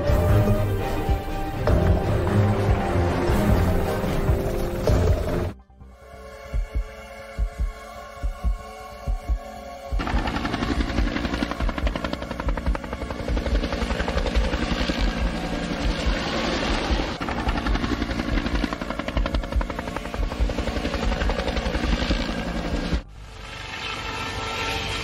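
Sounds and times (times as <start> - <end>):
helicopter rotor chopping: 6.6 - 25.0.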